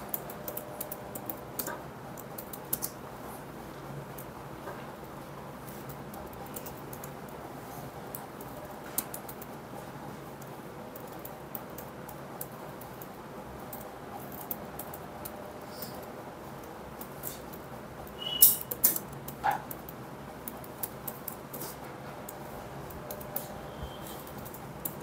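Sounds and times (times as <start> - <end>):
faint clicks and taps: 0.0 - 25.0
brief squeak: 18.2 - 18.7, 23.7 - 24.2.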